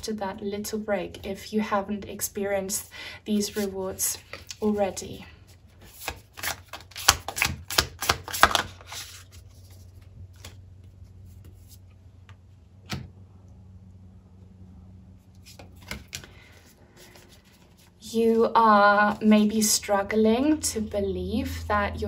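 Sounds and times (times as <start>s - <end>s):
faint steady hum: 0.0s - 7.4s, 8.1s - 22.0s
cards clicking and tapping on table: 6.0s - 8.7s, 15.6s - 16.3s.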